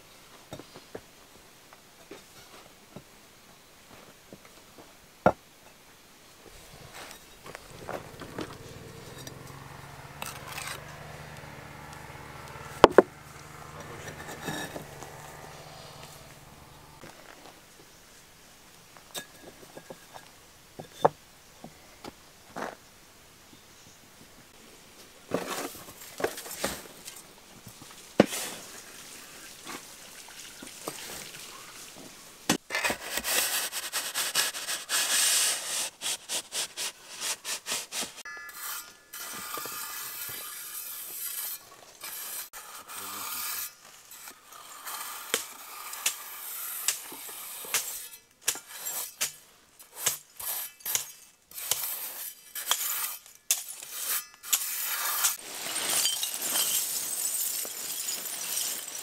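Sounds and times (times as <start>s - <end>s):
shovel scraping gritty fill: 6.5s - 10.8s, 12.9s - 17.4s, 28.2s - 29.9s, 30.6s - 59.0s
metal clinking on grit and brick: 6.6s - 11.0s, 13.8s - 16.3s, 19.1s - 21.2s, 38.2s - 59.0s.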